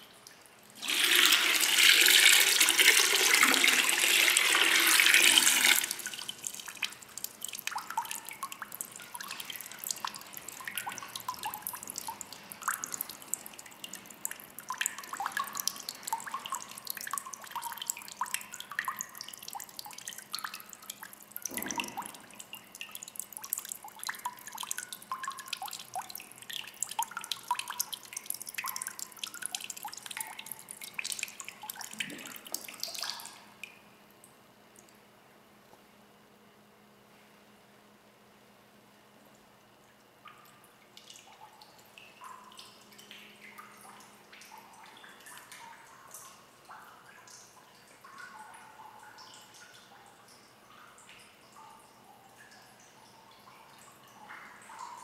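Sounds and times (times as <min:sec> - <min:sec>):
water splashing into basin: 0:00.8 - 0:33.8
drips plinking on water: 0:05.9 - 0:35.0, 0:39.9 - 0:55.0.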